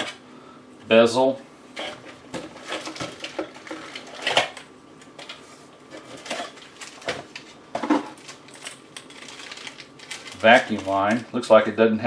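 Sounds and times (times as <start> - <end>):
handling box and packaging: 1.8 - 4.6, 5.9 - 11.3.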